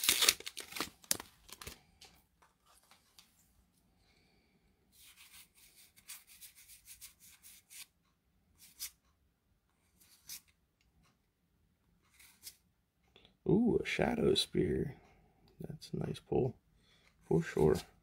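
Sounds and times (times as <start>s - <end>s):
trading cards rubbing together: 5.0s - 7.9s, 10.0s - 10.5s.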